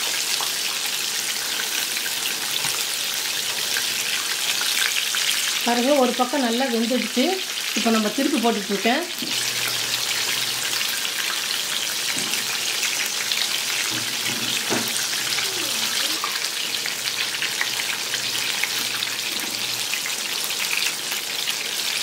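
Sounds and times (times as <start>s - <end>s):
oil sizzling and crackling: 0.0s - 22.0s.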